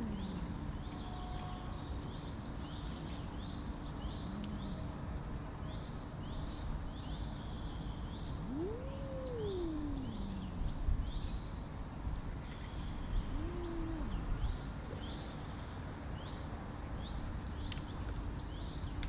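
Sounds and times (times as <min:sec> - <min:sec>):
low murmur: 0:00.0 - 0:01.0, 0:03.9 - 0:05.5, 0:08.4 - 0:11.4
outdoor background noise: 0:00.0 - 0:19.0
small birds chirping: 0:00.0 - 0:19.0
cat yowling angrily: 0:08.4 - 0:10.8.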